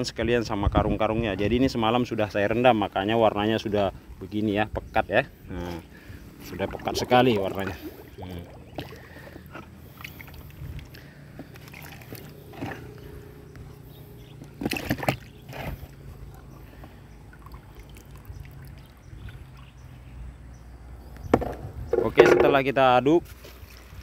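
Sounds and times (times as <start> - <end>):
splashing: 5.6 - 13.4, 14.4 - 19.8, 23.2 - 24.0
liquid sloshing in plastic drum: 6.4 - 13.2, 14.4 - 19.7.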